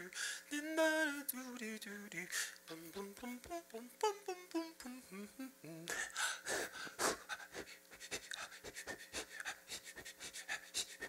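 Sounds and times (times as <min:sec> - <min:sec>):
loud rhythmic panting breaths: 0:05.9 - 0:11.0.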